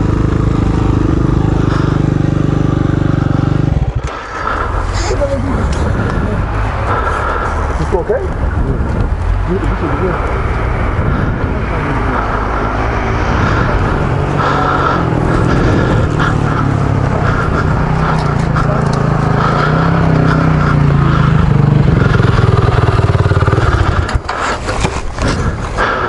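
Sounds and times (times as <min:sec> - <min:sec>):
vehicle engine idling: 0:00.0 - 0:26.0.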